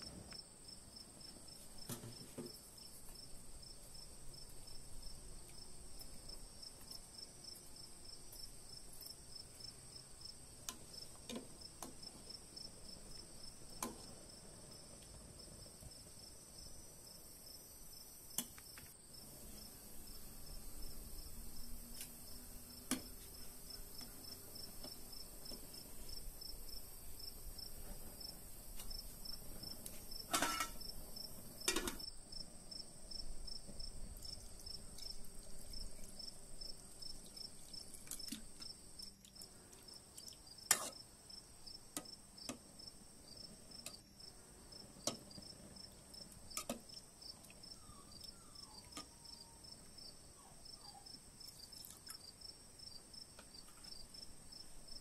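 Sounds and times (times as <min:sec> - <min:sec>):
crickets chirping: 0:00.0 - 0:55.0
high insect drone: 0:15.9 - 0:39.0
ladle knocking metal pot: 0:30.3 - 0:30.8.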